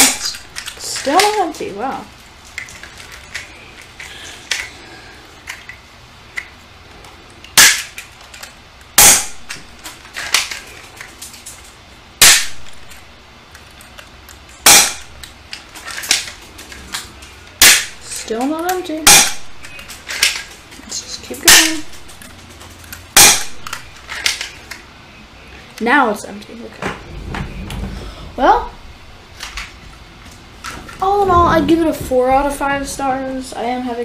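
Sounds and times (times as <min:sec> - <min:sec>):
airsoft pistol shots: 0:07.6 - 0:07.9, 0:09.0 - 0:09.5, 0:12.2 - 0:12.7, 0:14.6 - 0:15.1, 0:17.6 - 0:18.0, 0:19.0 - 0:19.5, 0:23.2 - 0:23.7.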